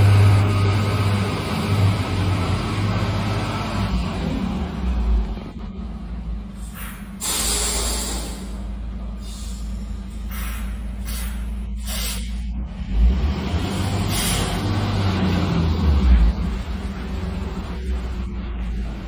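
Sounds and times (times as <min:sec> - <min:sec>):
truck diesel engine running: 0:00.0 - 0:19.0
short air hisses: 0:06.6 - 0:08.6, 0:09.2 - 0:12.4, 0:14.1 - 0:14.6.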